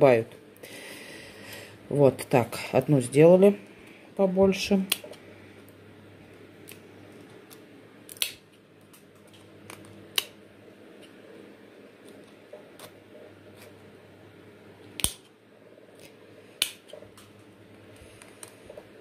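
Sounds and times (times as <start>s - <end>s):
scissors snipping plastic: 4.8s - 5.2s, 7.5s - 10.4s, 15.0s - 15.3s.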